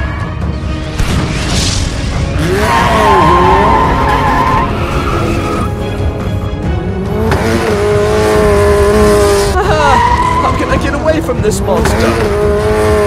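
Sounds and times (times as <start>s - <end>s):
action background music: 0.0s - 13.0s
car engines running: 2.1s - 13.0s
car tyres squealing: 2.4s - 5.8s, 8.5s - 11.1s.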